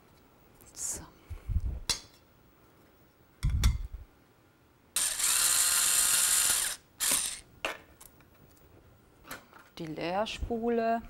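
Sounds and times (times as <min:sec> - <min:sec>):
steady whirr: 0:05.0 - 0:07.4.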